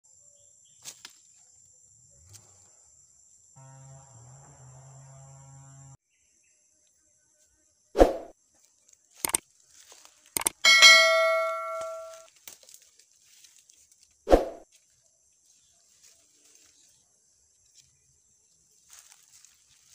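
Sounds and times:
bell ringing: 0:10.4 - 0:12.2
clicks: 0:10.4 - 0:12.2
faint steady high tone: 0:10.4 - 0:12.2.

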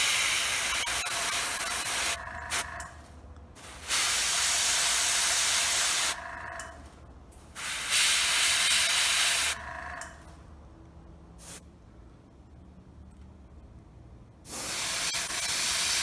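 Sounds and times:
airbrush spraying hiss: 0:03.6 - 0:06.2, 0:07.6 - 0:09.6, 0:11.4 - 0:11.6, 0:14.5 - 0:16.0.

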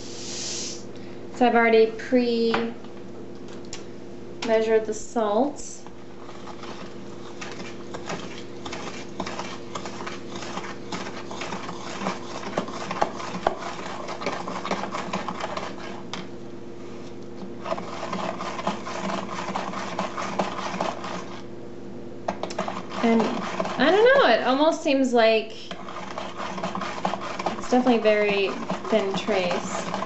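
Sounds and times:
spoon scraping plastic pitcher: 0:06.2 - 0:16.3, 0:17.6 - 0:21.5, 0:22.3 - 0:24.3, 0:25.6 - 0:30.0.

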